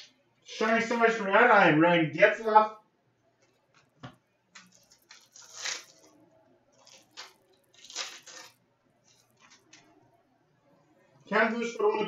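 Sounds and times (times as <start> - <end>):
pack wrapper crinkling: 4.5 - 6.2, 6.8 - 9.9.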